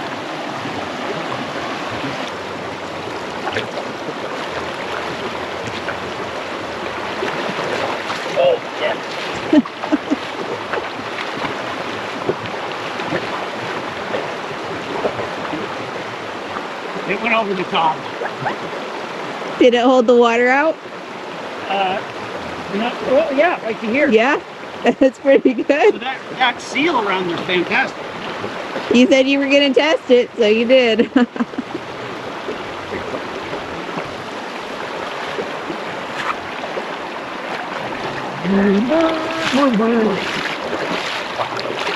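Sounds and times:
boots splashing through water: 0:00.0 - 0:19.6, 0:27.0 - 0:30.1, 0:31.1 - 0:41.9
creek running over rocks: 0:00.0 - 0:41.9
stream rushing: 0:00.0 - 0:41.9.

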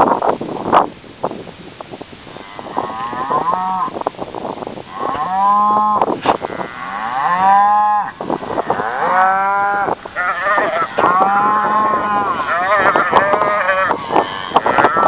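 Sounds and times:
cattle mooing: 0:02.4 - 0:03.9, 0:04.9 - 0:15.0.

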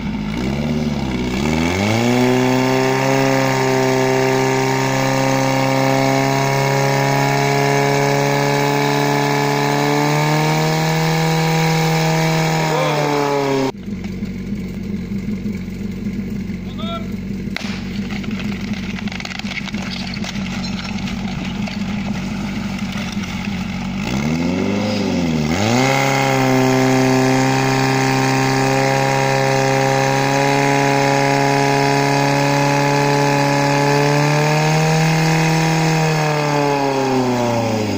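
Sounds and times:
pump engine running: 0:00.0 - 0:37.9.

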